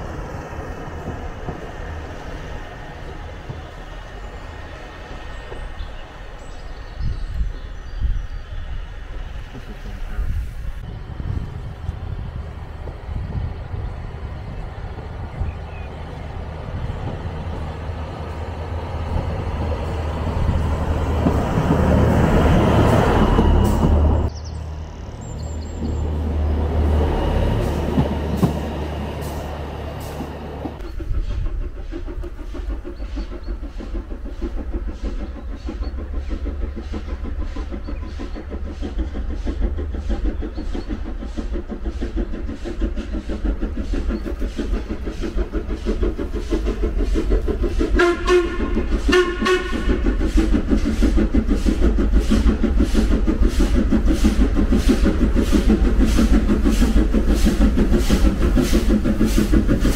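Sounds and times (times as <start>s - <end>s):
steam locomotive chuffing: 0.0s - 59.9s
steam whistle blasts: 48.0s - 50.1s.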